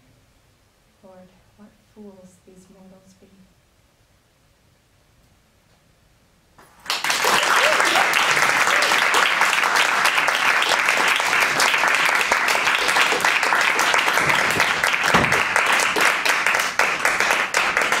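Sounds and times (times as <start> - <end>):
audience clapping: 6.6 - 18.0
low thump: 15.1 - 15.5.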